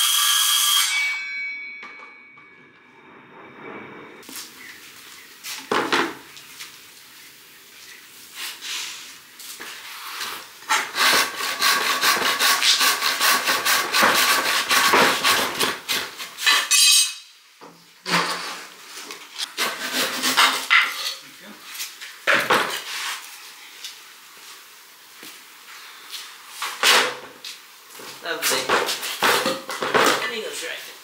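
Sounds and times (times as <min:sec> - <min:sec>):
handsaw cutting wood: 0:10.7 - 0:16.3, 0:19.4 - 0:20.8.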